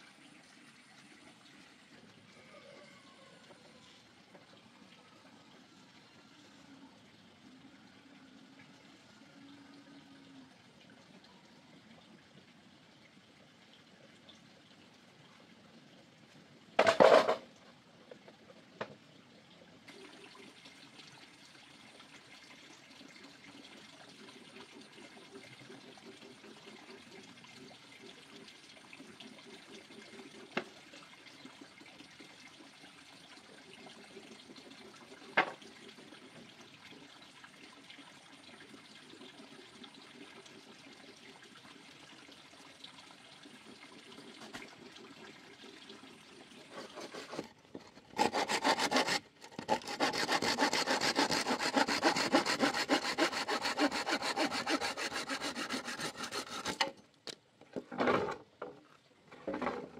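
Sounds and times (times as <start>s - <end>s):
wood being sawn: 46.8s - 56.9s.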